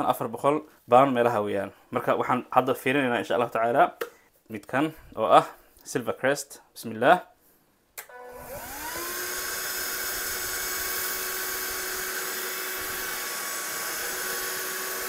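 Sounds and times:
vacuum cleaner motor whine: 8.1 - 15.0.

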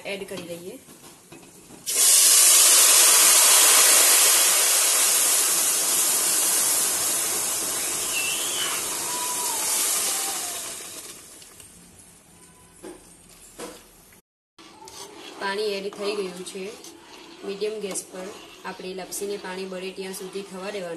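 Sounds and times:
water hissing in hot fat: 1.9 - 11.4.

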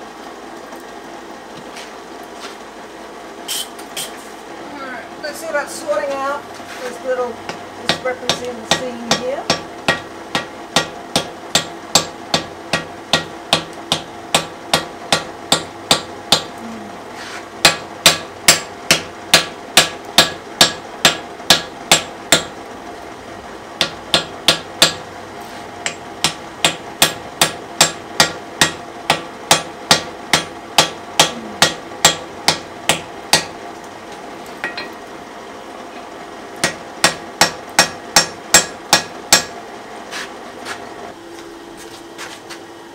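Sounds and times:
anvil ringing: 34.6 - 35.0.

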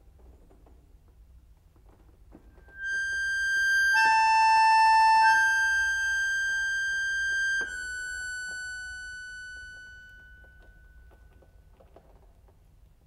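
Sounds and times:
instrumental music held notes: 2.6 - 11.7.

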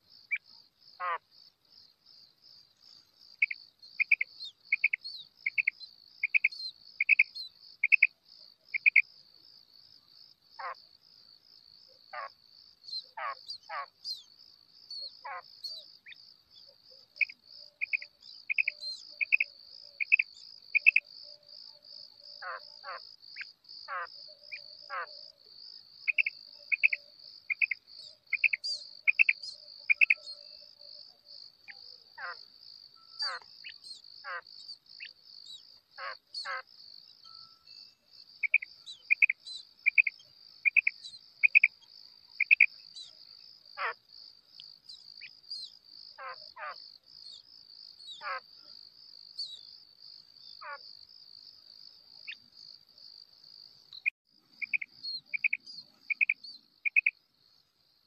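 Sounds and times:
quail calling short notes: 33.2 - 33.5.

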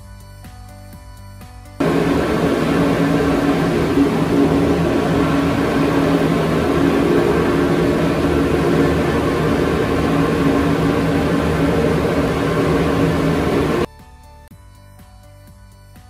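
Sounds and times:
dust collector motor humming: 1.8 - 13.9
rush of air: 1.8 - 13.9.

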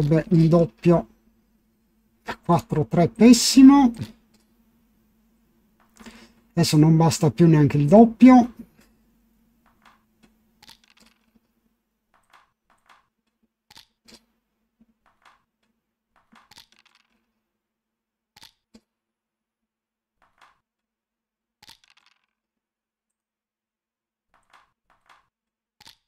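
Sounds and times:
faint sharp clicks of game pieces: 9.6 - 11.5, 12.1 - 17.4, 18.4 - 19.0, 20.2 - 20.9, 21.6 - 22.4, 24.3 - 26.0.

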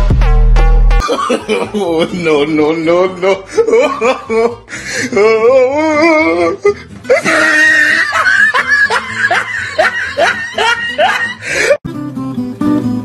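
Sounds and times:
music playing: 0.0 - 13.0
girl laughing hard: 1.0 - 2.2, 3.2 - 4.7, 7.1 - 11.8.

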